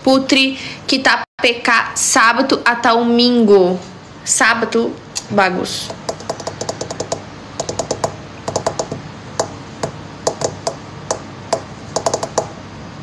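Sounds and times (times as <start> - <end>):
fingernails tapping on marble: 5.9 - 12.6.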